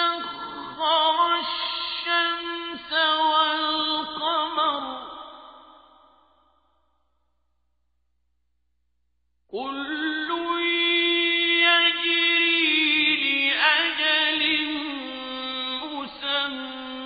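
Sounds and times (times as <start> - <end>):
man reciting in melodic chant: 0.0 - 5.2, 9.6 - 17.0.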